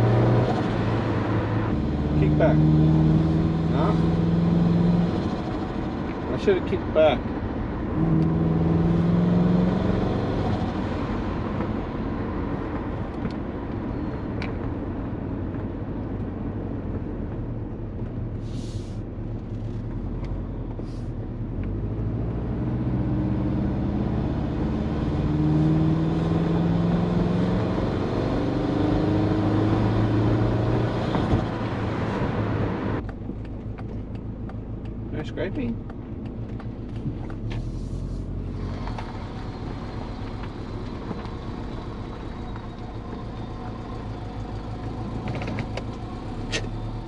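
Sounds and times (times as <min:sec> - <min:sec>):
turbocharged car engine: 0:00.0 - 0:15.2, 0:19.4 - 0:47.0
short turbo hisses: 0:18.4 - 0:19.0.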